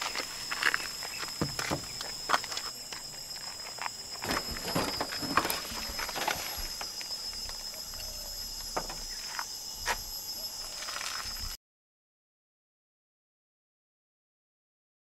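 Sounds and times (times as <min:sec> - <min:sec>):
footsteps on gravel: 0:00.0 - 0:06.8
steady high-pitched hum: 0:00.0 - 0:11.6
knocks and rustles of handling: 0:04.2 - 0:07.0.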